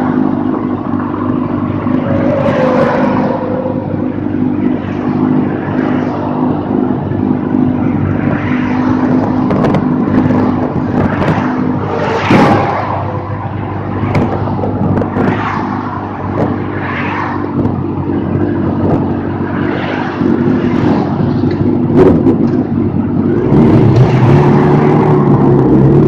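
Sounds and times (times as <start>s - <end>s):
motorcycle engine running: 0.0s - 12.0s
wind rushing over microphone: 0.0s - 26.0s.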